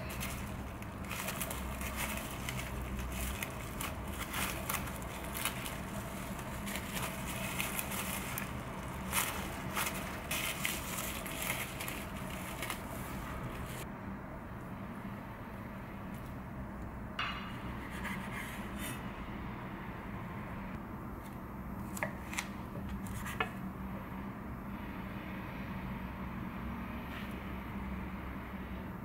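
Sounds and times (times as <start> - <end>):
plastic wrap crinkling: 0.0 - 13.8.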